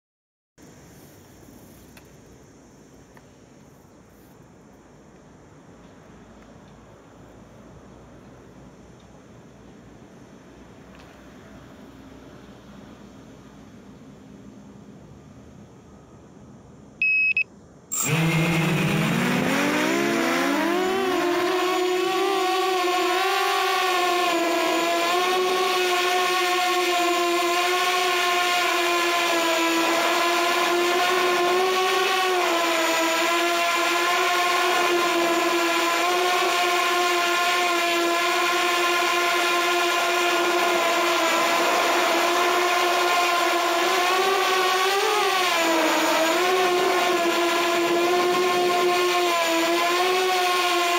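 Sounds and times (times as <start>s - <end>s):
quadcopter motors whining: 17.0s - 50.9s.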